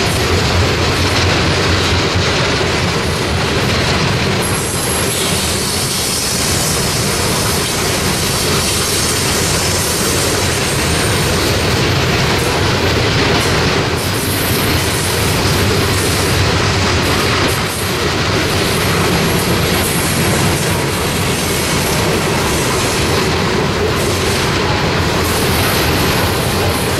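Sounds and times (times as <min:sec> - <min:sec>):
freight train rolling past: 0:00.0 - 0:26.9.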